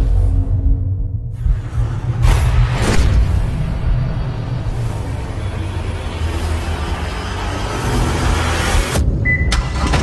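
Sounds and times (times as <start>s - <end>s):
low rumble: 0.0s - 7.6s.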